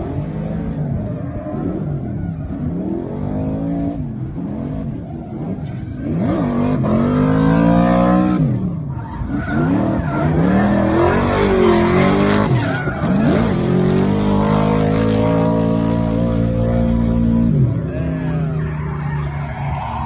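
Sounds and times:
car engine at high revs: 0.0 - 19.9
tyres spinning and sliding: 0.0 - 20.0.

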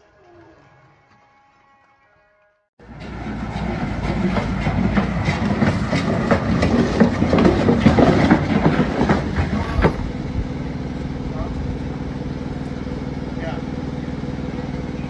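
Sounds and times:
damaged vehicle clattering and scraping: 2.8 - 13.0
low engine rumble: 2.8 - 15.0.

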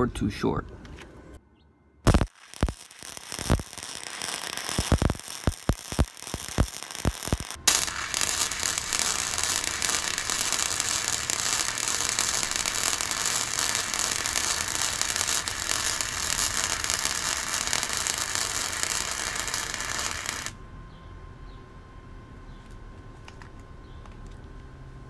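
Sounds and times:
arc welding crackle and sizzle: 2.1 - 20.6.

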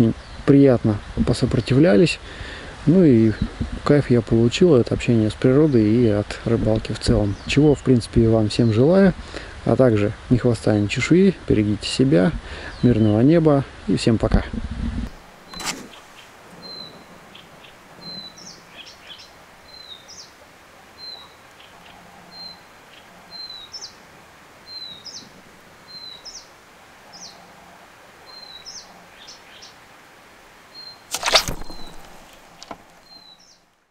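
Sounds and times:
bird calling: 15.1 - 20.4, 21.0 - 24.0, 30.7 - 33.6
rising bird chirps: 15.4 - 20.3, 30.7 - 33.6
thump or rustle: 15.5 - 16.2, 31.1 - 33.2.

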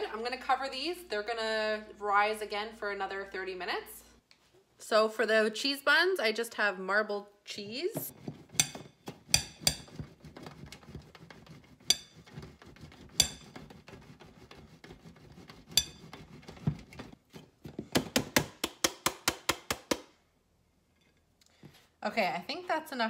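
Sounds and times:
cheese grater scraping: 9.6 - 17.2.

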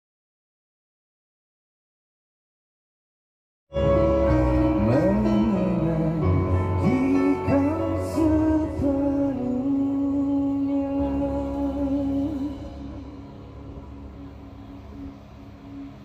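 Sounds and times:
live band with male singer: 3.8 - 13.7.

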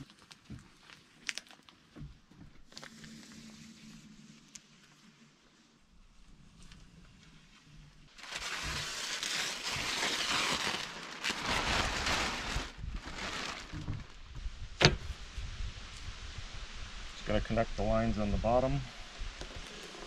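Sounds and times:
plastic sheeting rustling: 6.6 - 16.9.

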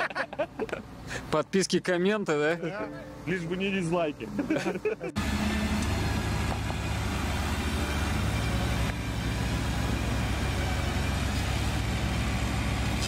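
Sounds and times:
atv engine rumbling: 4.3 - 13.0.

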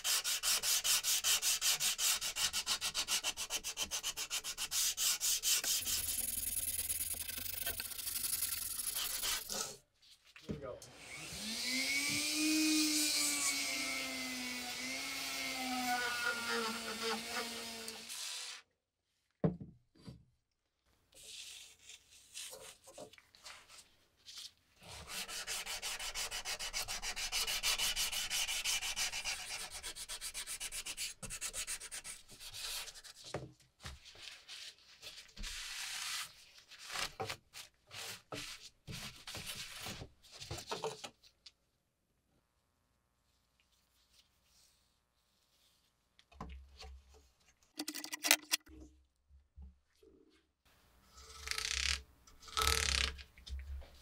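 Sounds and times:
sanding sponge scraping saw blade: 0.0 - 9.7, 14.6 - 18.6.

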